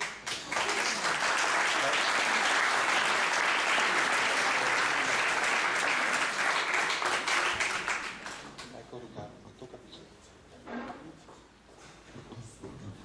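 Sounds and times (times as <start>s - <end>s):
audience applauding: 0.0s - 8.7s.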